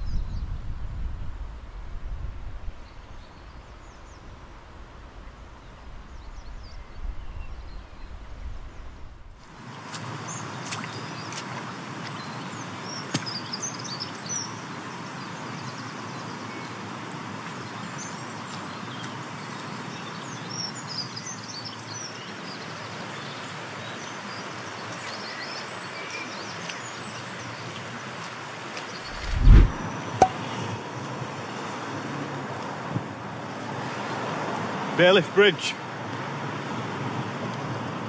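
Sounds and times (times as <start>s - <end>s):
steady rushing noise: 29.0s - 29.9s.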